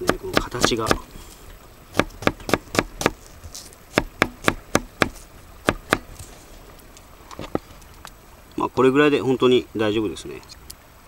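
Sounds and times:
knife chopping on wooden board: 0.0s - 1.1s, 1.9s - 3.2s, 3.9s - 6.1s.

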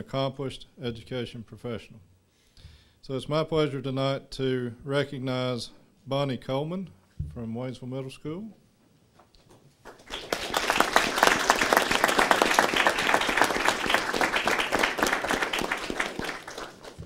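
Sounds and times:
crowd applauding: 9.9s - 17.0s.

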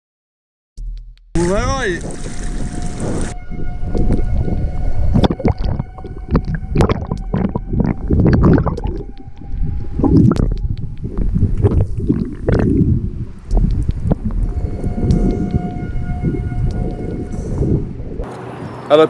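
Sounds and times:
water splashing: 1.4s - 17.2s
muffled underwater gurgling: 1.4s - 17.9s
low rumble: 1.4s - 18.8s
sharp clicks and knocks: 13.5s - 14.5s.

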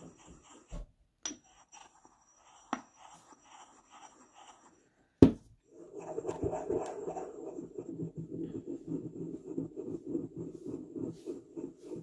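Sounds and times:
stone knocking on stone: 5.2s - 5.4s.

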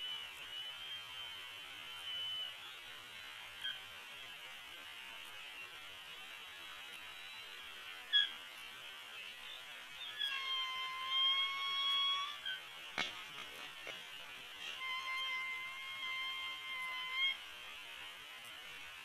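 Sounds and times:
steady hiss: 0.0s - 19.0s
high-pitched eagle calls: 3.6s - 3.9s, 8.1s - 8.4s, 10.0s - 12.7s, 14.6s - 17.4s.

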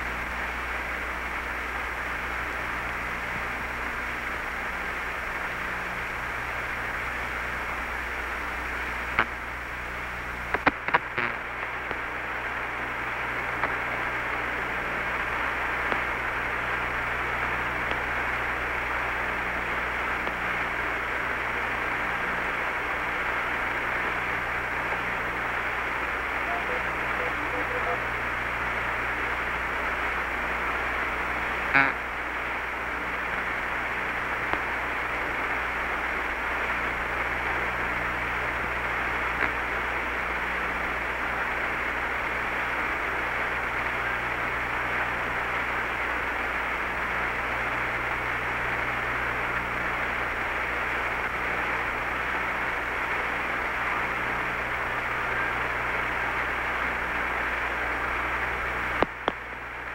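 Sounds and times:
radio channel hiss: 0.0s - 59.9s
low hum: 0.1s - 35.2s.

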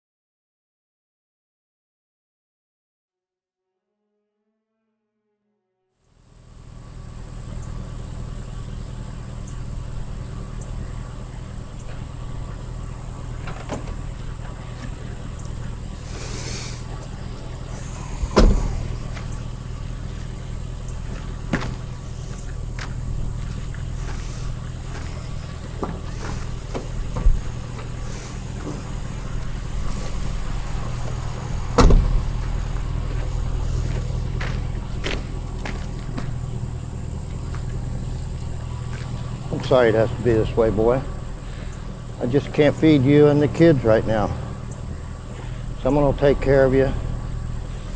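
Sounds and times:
truck engine idling: 6.1s - 47.9s
truck door slamming: 13.2s - 36.7s.

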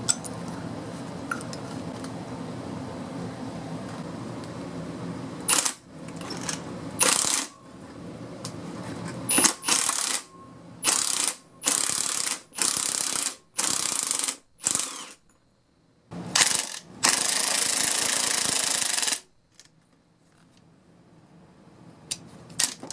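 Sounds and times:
impact wrench hammering: 5.5s - 7.6s, 9.3s - 15.2s, 16.3s - 19.2s.

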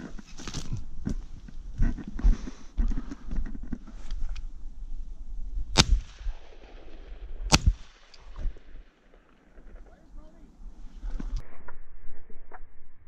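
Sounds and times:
shotgun shots: 5.8s - 9.8s.

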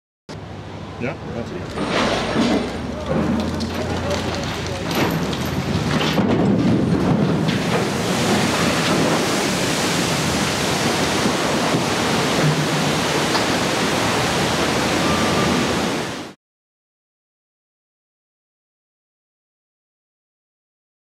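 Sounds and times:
churning surging water: 0.9s - 16.4s.

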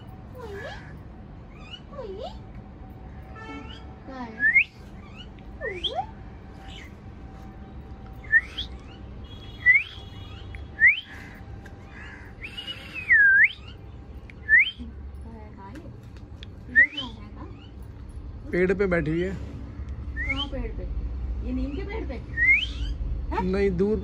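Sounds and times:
bird whistling upward notes: 4.4s - 6.0s, 8.2s - 9.0s, 9.6s - 11.2s, 12.0s - 13.8s, 14.4s - 14.8s, 22.3s - 23.0s.

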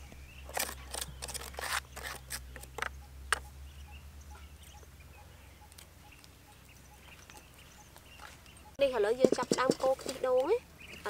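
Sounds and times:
scraping and crunching on clay: 0.5s - 2.9s.

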